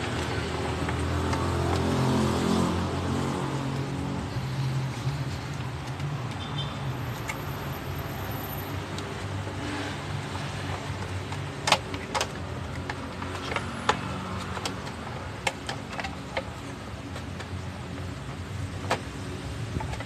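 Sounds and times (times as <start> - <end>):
plastic parts clicking: 10.9 - 17.6.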